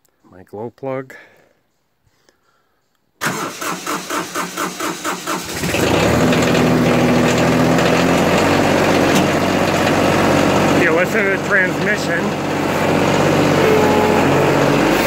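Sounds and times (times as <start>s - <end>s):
diesel tractor engine idling: 3.2s - 15.0s
starter motor cranking: 3.2s - 15.0s.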